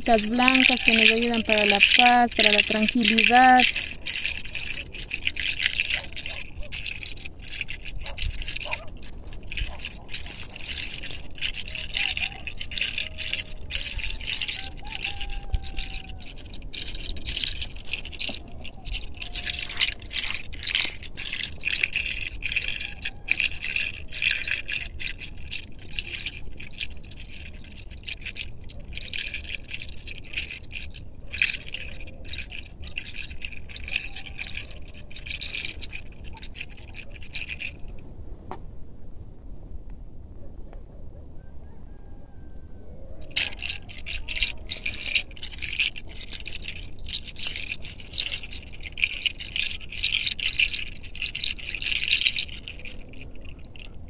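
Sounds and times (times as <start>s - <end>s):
hands rubbing hair: 0.0s - 37.9s.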